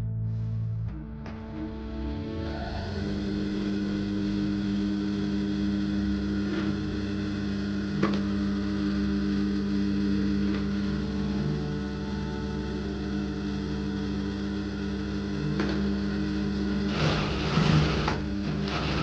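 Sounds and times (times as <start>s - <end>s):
sewing machine motor humming: 2.9s - 19.0s.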